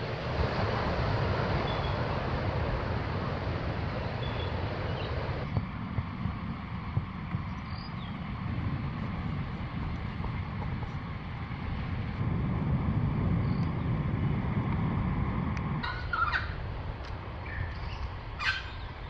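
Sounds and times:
wind rumbling on microphone: 0.0s - 19.0s
faint bird chirps: 4.2s - 5.2s.

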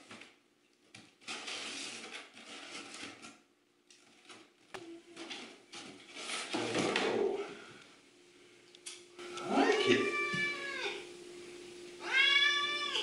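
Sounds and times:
cardboard flaps scraping and rustling: 1.0s - 3.4s, 5.1s - 7.2s.

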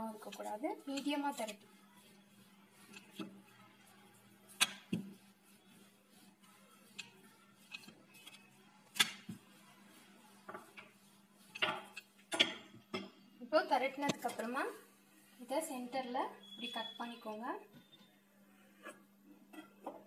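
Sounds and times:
rolling pin rolling dough: 0.0s - 12.6s.

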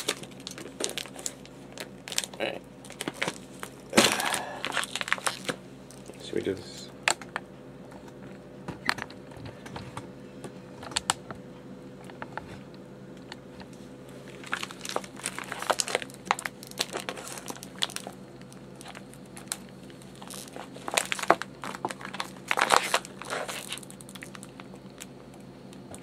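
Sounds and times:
scissors snipping plastic bag: 0.0s - 6.2s, 14.3s - 25.1s
plastic crinkling: 0.0s - 6.3s, 14.1s - 25.9s.

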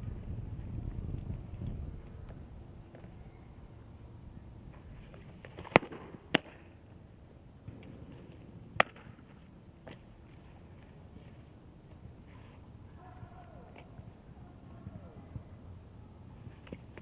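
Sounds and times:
softball smacking into glove: 8.8s - 9.1s.

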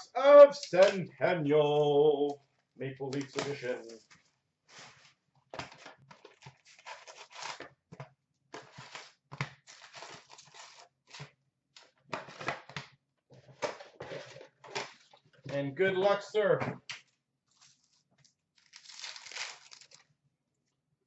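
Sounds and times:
cardboard and wrapping tearing: 5.7s - 7.7s, 8.6s - 11.2s, 17.5s - 20.1s.

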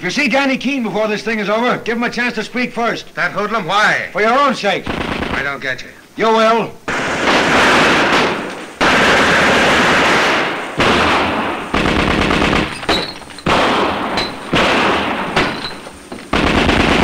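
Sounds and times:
submachine gun bursts: 4.9s - 5.5s, 10.8s - 17.0s.

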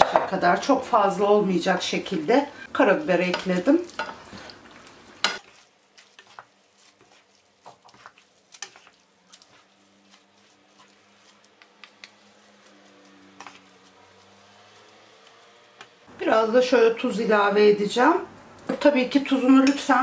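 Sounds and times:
sauce squishing: 3.8s - 16.0s
spoons clicking against pan: 11.5s - 12.2s, 19.6s - 20.0s.

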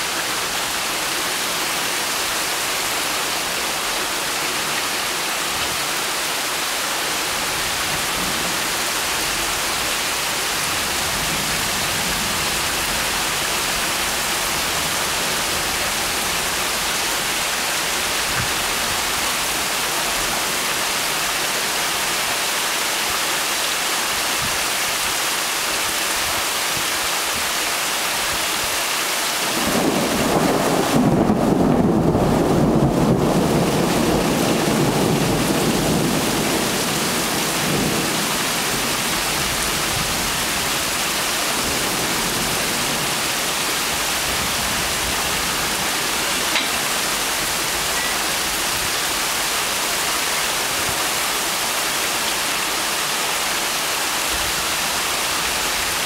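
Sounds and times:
heavy rain falling: 0.0s - 56.0s
thunder rumbling: 29.5s - 39.2s.

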